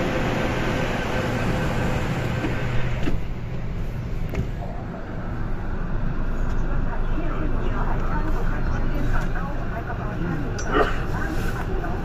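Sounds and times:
train doors shutting: 0.0s - 4.7s
train equipment hum: 0.0s - 12.0s.

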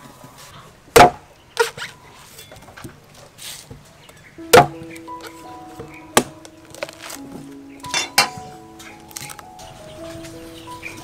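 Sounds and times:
cleaver chopping coconut on wood: 1.0s - 1.7s, 6.2s - 6.4s.

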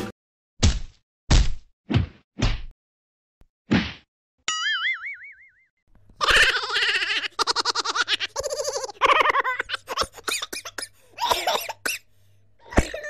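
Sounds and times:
person laughing: 6.2s - 11.7s, 12.6s - 13.0s.

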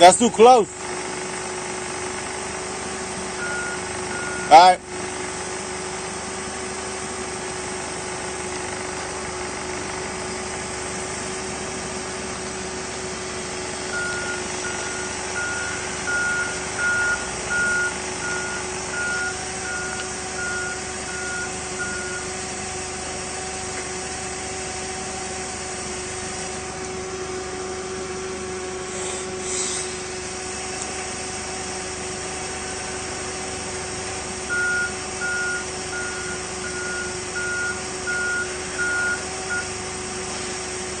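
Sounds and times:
forklift engine humming: 0.0s - 41.0s
reversing alarm beeps: 3.4s - 4.6s, 13.9s - 22.3s, 34.5s - 39.8s.

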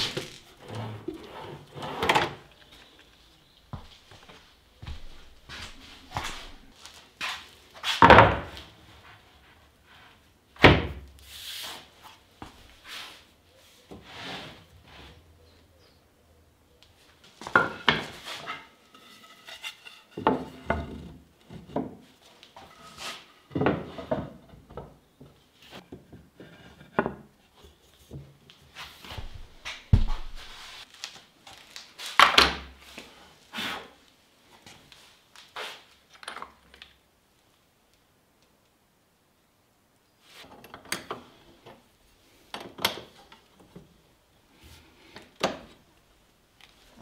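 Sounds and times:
wood rubbing: 17.5s - 24.4s.

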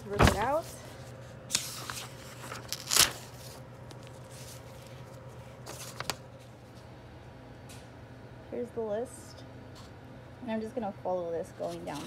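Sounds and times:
paper tearing: 1.5s - 3.5s.

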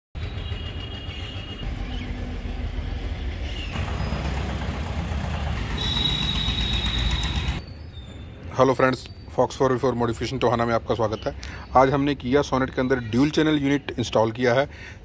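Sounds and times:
vehicle engine rumbling: 0.2s - 7.6s.

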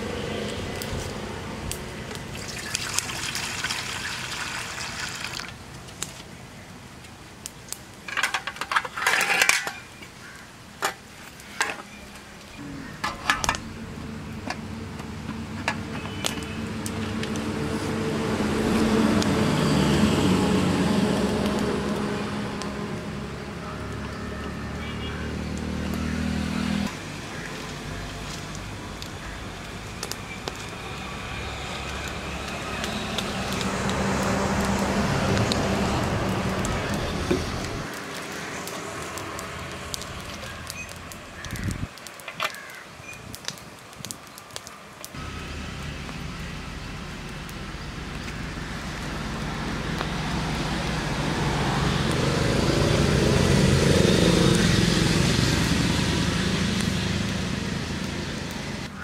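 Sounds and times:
metal pots and lid clanking: 8.1s - 9.9s.

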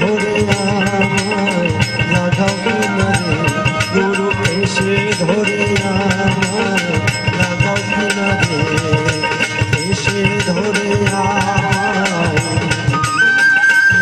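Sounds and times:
hand percussion beat: 0.0s - 14.0s
bamboo flute high note: 13.0s - 14.0s.

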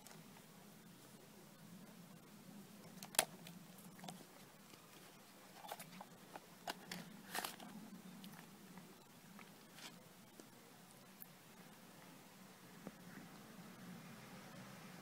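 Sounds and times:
faint steady hum: 0.0s - 15.0s
soft clicks and rustles: 2.8s - 11.4s.

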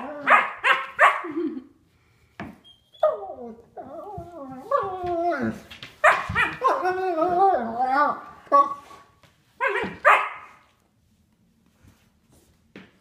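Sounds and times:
dogs yipping and barking: 0.0s - 1.3s, 6.0s - 6.8s, 9.6s - 10.5s
dog whining: 2.6s - 5.6s.

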